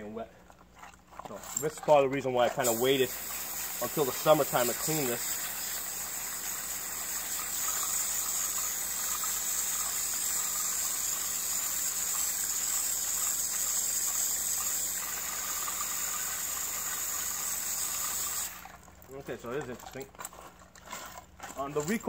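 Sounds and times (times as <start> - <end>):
hose nozzle spraying water: 1.8 - 18.9.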